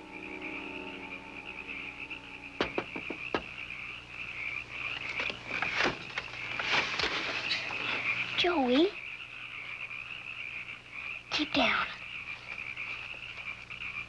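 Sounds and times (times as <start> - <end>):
frogs calling: 0.0 - 14.0
knock: 2.6 - 3.5
sharp taps: 2.6 - 3.5.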